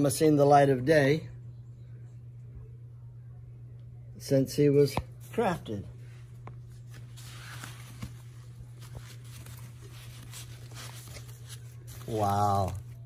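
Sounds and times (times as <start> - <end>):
steady low hum: 0.0 - 13.0
foam packing rustling: 6.8 - 13.0.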